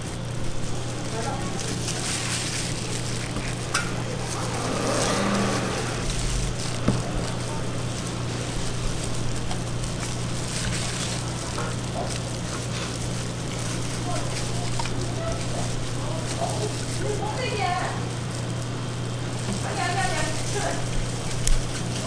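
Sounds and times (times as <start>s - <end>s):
even hiss: 0.0s - 11.0s
low hum: 2.0s - 10.2s.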